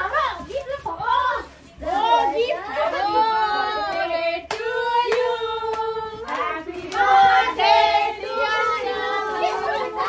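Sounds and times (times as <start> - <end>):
group singing together: 2.6 - 10.0.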